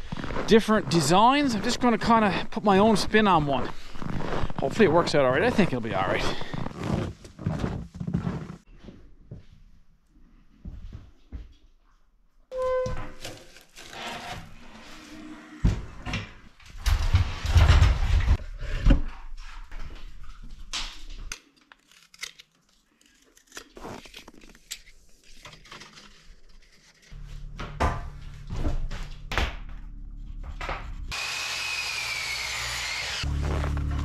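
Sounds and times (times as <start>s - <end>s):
miter saw cutting wood: 31.0s - 34.0s.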